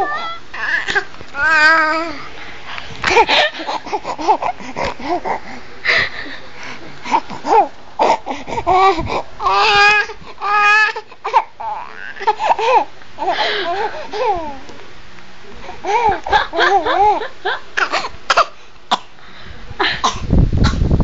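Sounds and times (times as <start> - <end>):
baby laughing and babbling: 0.0 - 2.4, 3.0 - 6.0, 7.0 - 14.8, 15.6 - 18.2.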